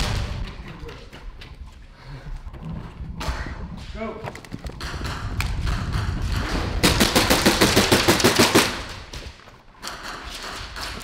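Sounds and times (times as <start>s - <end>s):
airsoft gun rapid shots: 4.8s - 9.0s.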